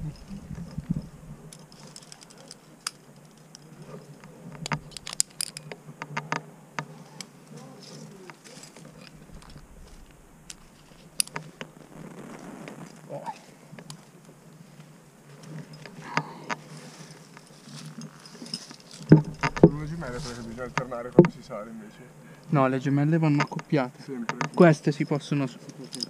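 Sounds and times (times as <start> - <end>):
climbing gear clinking: 0.0 - 6.3, 7.2 - 11.8, 15.4 - 22.6, 25.7 - 26.0.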